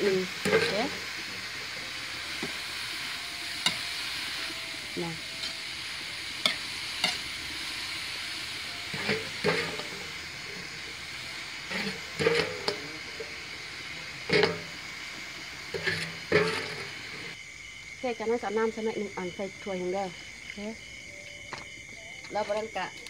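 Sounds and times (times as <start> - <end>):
food sizzling in a wok: 0.0 - 21.8
metal spatula scraping a pan: 0.3 - 14.9, 15.6 - 17.4.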